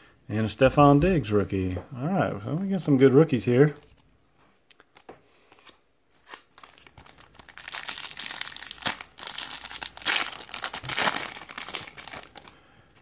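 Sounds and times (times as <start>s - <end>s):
foil wrapper tearing and crinkling: 4.6s - 12.6s.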